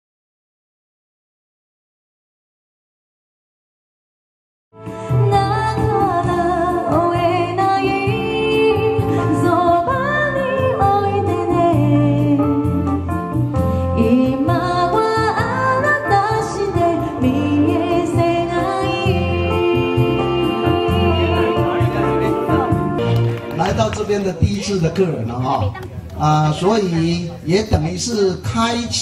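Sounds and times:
electronic keyboard accompaniment: 4.8 - 28.1
woman singing into microphone: 5.0 - 13.1, 13.8 - 23.0.

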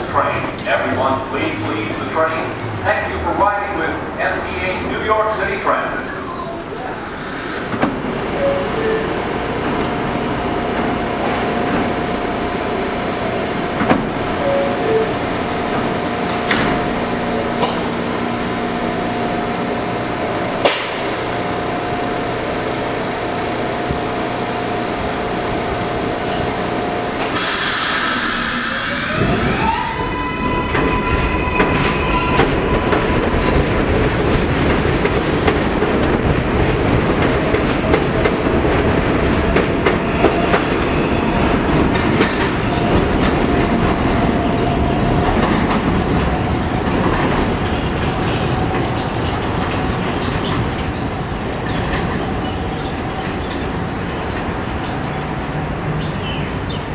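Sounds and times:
train wheels rumbling on track: 0.0 - 56.9
train propulsion whine: 6.6 - 55.5
air hiss: 27.3 - 29.0.

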